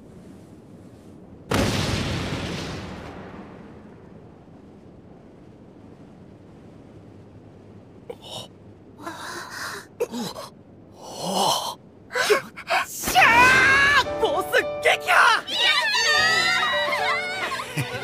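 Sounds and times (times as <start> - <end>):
breathy gasps and exhalations: 8.1 - 12.9.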